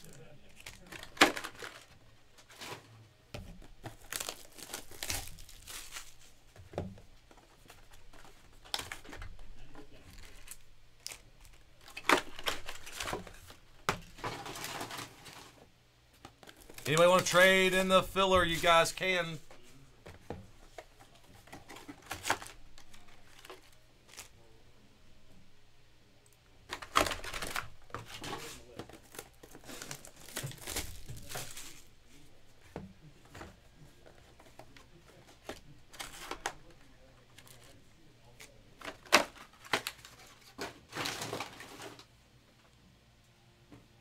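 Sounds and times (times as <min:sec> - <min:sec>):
plastic wrap crinkling and tearing: 0:00.0 - 0:02.8, 0:03.8 - 0:06.4, 0:07.6 - 0:15.6, 0:16.4 - 0:19.3, 0:21.5 - 0:24.4, 0:26.7 - 0:32.3, 0:35.9 - 0:42.1
cardboard rustling: 0:00.0 - 0:15.6, 0:16.2 - 0:24.3, 0:26.7 - 0:42.1.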